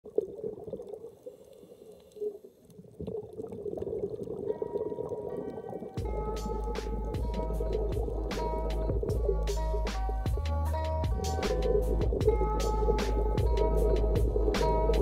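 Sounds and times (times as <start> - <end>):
muffled crackly underwater sound: 0.1 - 10.4, 11.1 - 15.0
background music: 4.5 - 15.0
bass beat: 6.0 - 15.0.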